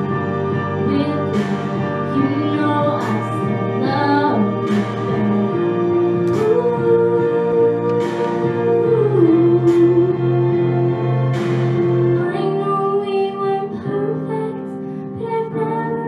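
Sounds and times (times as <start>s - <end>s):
instrumental accompaniment: 0.0s - 13.8s
girl singing into a microphone: 0.8s - 4.6s, 6.3s - 10.3s, 12.1s - 16.0s.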